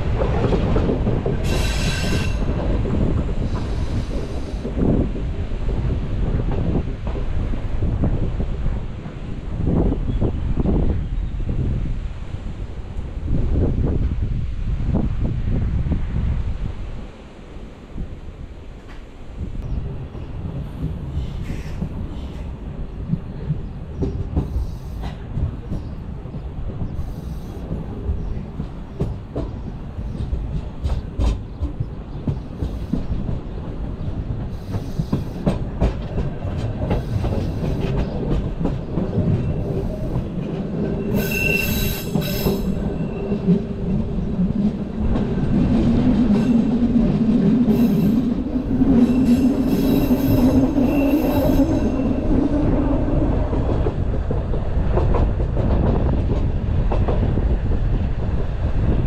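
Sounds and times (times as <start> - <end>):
train rumbling: 0.0 - 59.0
train wheels squealing: 1.4 - 2.5, 34.6 - 35.5, 39.3 - 43.6, 48.9 - 52.5.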